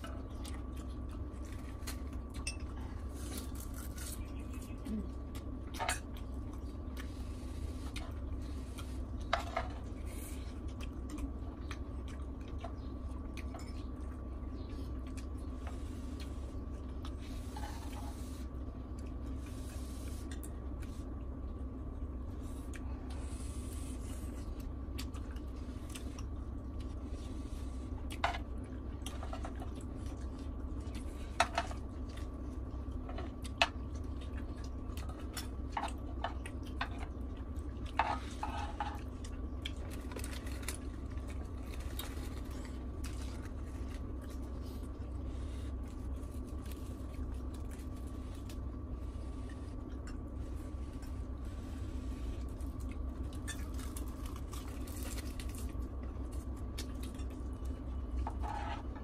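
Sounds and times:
steady low hum: 0.0 - 59.0
spoons scraping a grill pan: 58.3 - 58.9.

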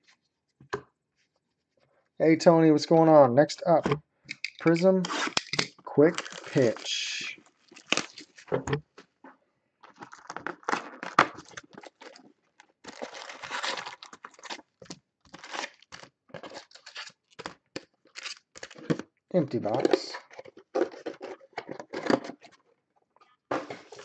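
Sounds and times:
packaging crinkling and tearing: 4.6 - 8.5, 9.8 - 19.0
foil packs rustling: 6.0 - 8.5, 9.8 - 18.9.

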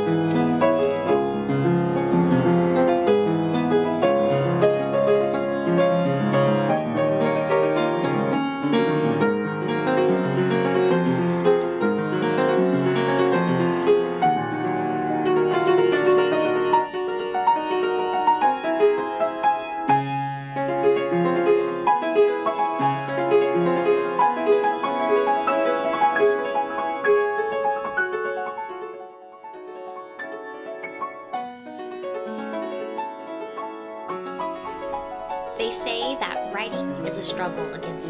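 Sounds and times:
piano music: 0.0 - 38.0.

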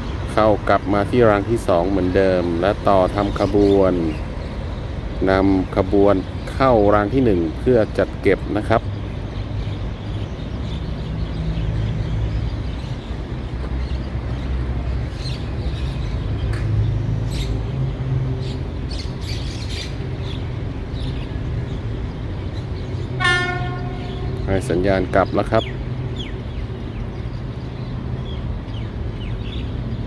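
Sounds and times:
diesel locomotive rumbling: 0.0 - 30.0
bird chirps: 8.3 - 30.0.

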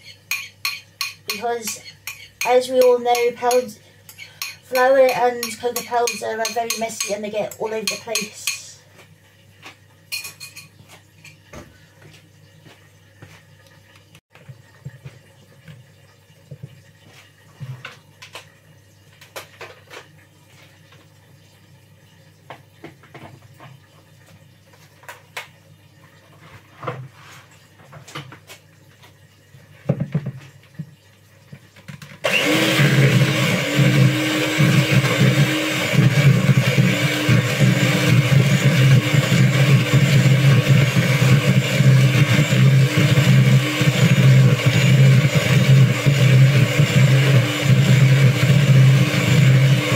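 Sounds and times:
electric hand mixer running: 32.2 - 49.9.

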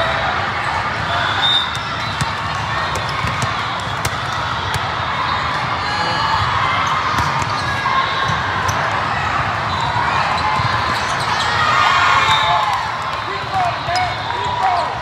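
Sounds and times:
volleyball hits and bounces: 1.6 - 5.0, 7.1 - 8.9.

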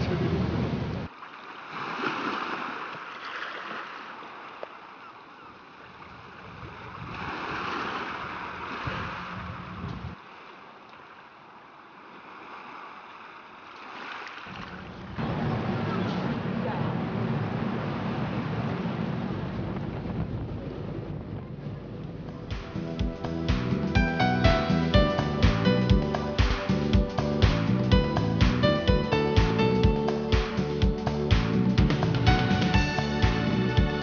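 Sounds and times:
sea water splashing against boat: 0.0 - 23.6
wind: 0.0 - 34.0.

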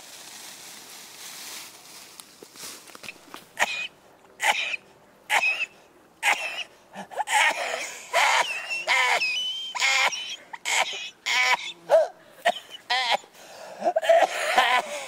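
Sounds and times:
man crying out and wailing: 7.0 - 15.0.

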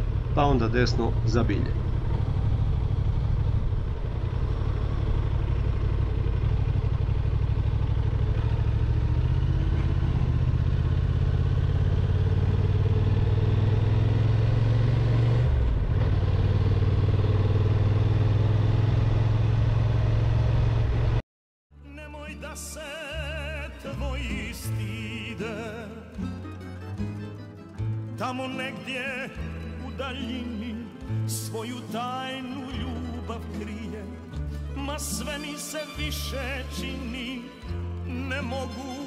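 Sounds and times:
motorcycle engine running: 0.0 - 21.2
music with singing: 21.8 - 39.0.

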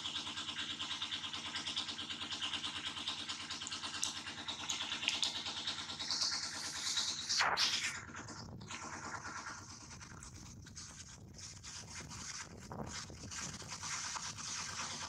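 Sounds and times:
small engine idling: 0.0 - 7.3.

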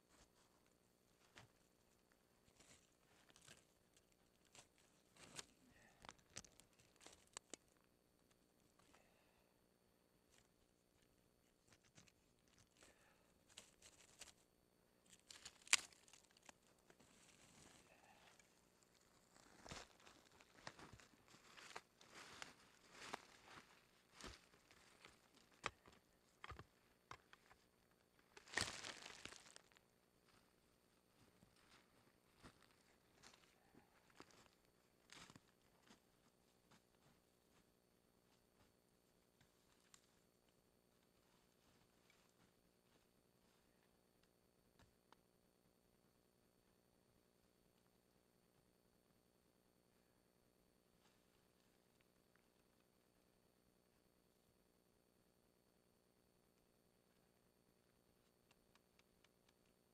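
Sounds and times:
twigs snapping: 2.6 - 7.8, 15.0 - 16.7, 25.0 - 27.6, 28.4 - 29.8
crunching in dry leaves: 15.1 - 18.2, 28.4 - 29.8.

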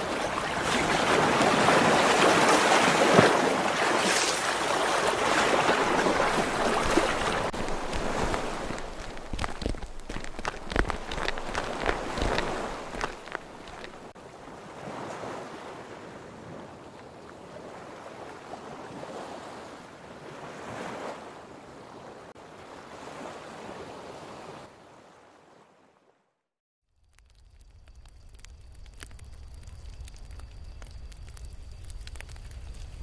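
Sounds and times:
ocean waves washing in: 0.0 - 9.4.

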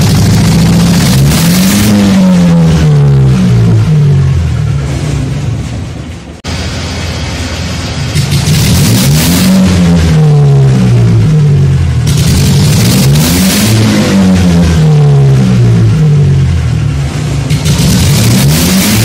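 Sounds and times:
engine revving: 0.0 - 5.8, 6.4 - 19.0.

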